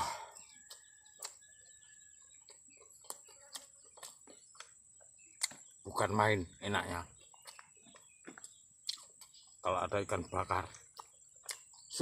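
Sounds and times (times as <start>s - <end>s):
man chewing food: 0.0s - 5.8s, 7.1s - 9.7s, 10.6s - 12.0s
mouth clicks and smacks: 0.4s - 1.5s, 5.4s - 5.6s, 7.2s - 9.4s, 10.7s - 12.0s.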